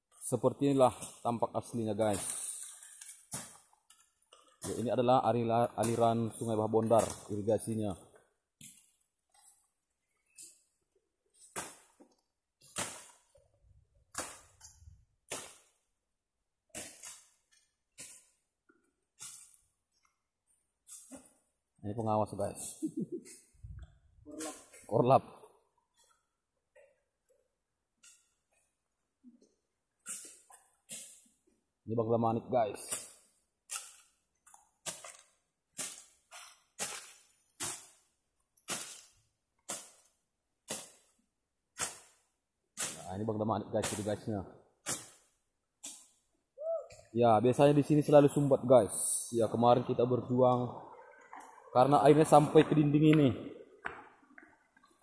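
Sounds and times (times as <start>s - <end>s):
cut vegetation rustling: 11.3s - 15.9s, 16.7s - 25.0s, 32.8s - 46.3s
footsteps crunching on dry leaves: 38.7s - 39.2s
blade swishing through brush: 41.8s - 42.2s, 42.8s - 43.1s.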